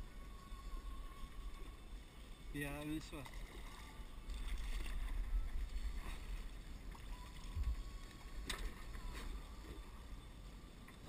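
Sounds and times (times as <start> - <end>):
water lapping against boat: 3.0 - 10.2
wind rumbling on microphone: 3.9 - 10.3.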